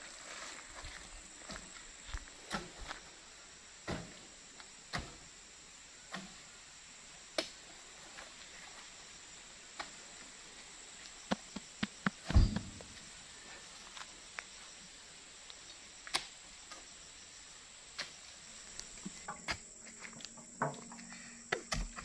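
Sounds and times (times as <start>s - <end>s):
high insect drone: 0.0s - 22.0s
fruit bunches thudding on truck: 12.2s - 12.9s.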